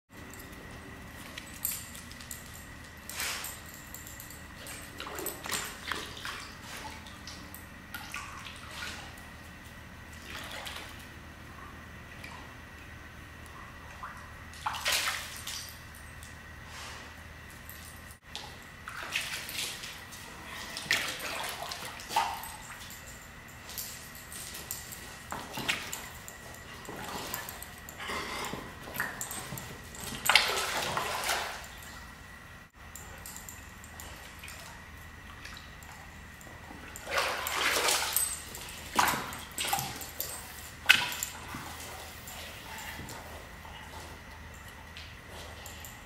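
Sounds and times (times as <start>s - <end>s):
dog splashing in pool water: 14.6s - 15.7s, 18.3s - 23.0s, 30.2s - 31.8s, 36.9s - 43.0s.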